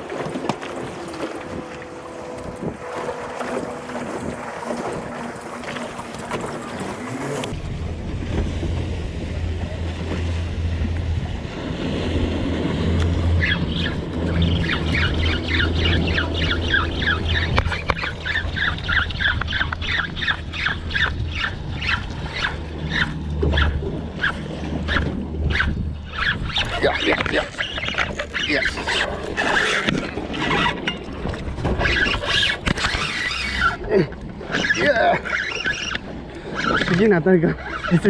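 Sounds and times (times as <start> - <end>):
low steady drone: 0.0 - 31.9
fishing reel squeaking: 13.4 - 30.9, 31.8 - 38.0.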